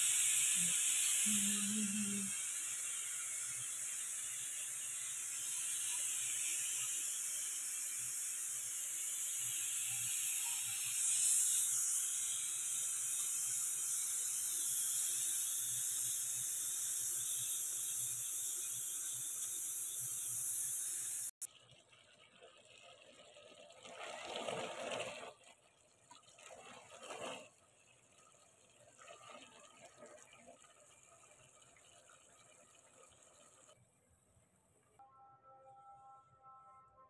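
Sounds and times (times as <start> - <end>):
pressure cooker hissing: 0.0 - 21.5.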